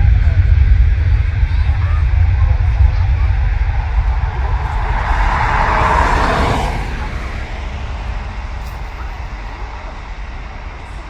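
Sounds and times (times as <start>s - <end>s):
jet aircraft roar: 0.0s - 11.0s
low rumble: 0.0s - 11.0s.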